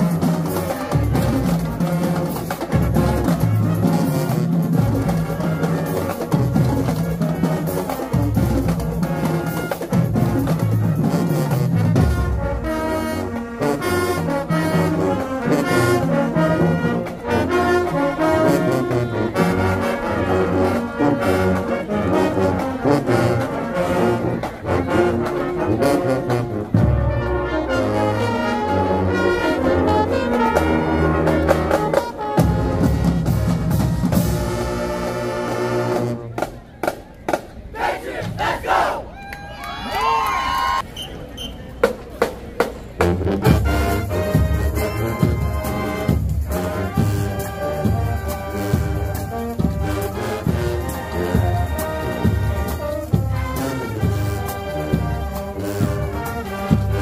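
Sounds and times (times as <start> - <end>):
low brass bass notes: 0.0 - 36.5, 43.0 - 57.0
drumline: 0.0 - 39.2, 41.6 - 57.0
marching band brass section: 0.0 - 39.2, 40.0 - 57.0.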